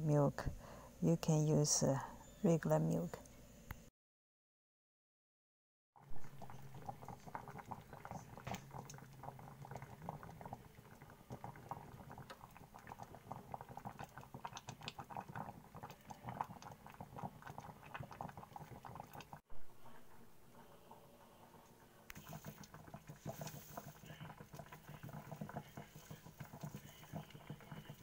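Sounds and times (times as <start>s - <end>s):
milk bubbling and popping in saucepan: 6.0s - 19.8s, 20.5s - 28.0s
low hum: 19.6s - 22.2s.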